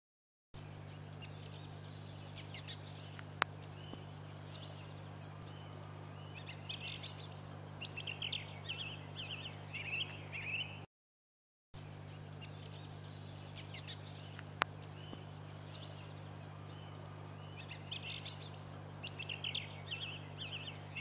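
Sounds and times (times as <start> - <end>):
faint low hum: 0.6 - 10.9, 11.8 - 21.0
song thrush singing: 0.6 - 10.9, 11.8 - 21.0.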